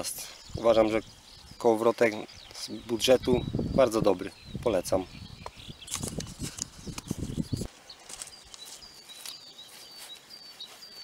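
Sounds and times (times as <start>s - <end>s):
small bird chirping: 0.0s - 11.0s
microphone handling noise: 5.3s - 7.7s.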